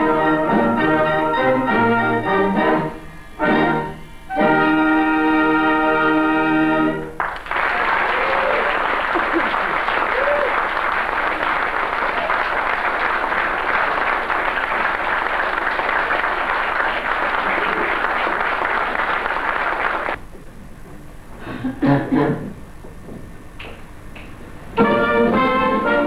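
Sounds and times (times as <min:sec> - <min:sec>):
audience applauding: 0:07.2 - 0:20.2.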